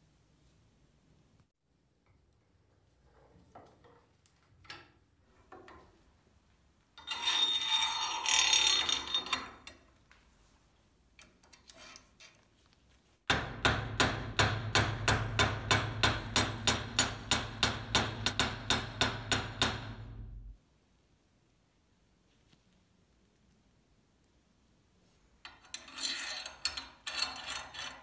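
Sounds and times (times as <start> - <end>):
metal scraping and rattling: 7.0 - 9.8, 25.5 - 28.0.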